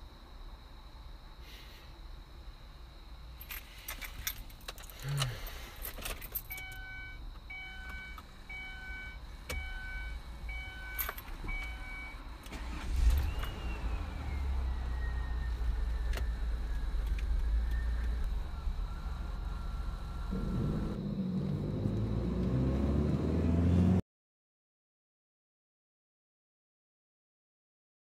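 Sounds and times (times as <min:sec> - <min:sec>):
car keys jangling: 0:03.4 - 0:06.9, 0:10.8 - 0:11.8
car engine starting and running: 0:04.6 - 0:24.0
car warning chime: 0:06.5 - 0:12.8.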